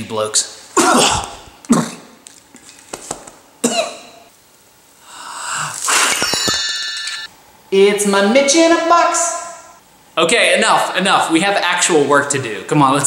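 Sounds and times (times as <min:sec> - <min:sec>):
man coughing: 0:00.8 - 0:02.1, 0:03.6 - 0:04.2
breathy vocal sound: 0:05.0 - 0:05.9
bell-like ding: 0:06.2 - 0:07.3.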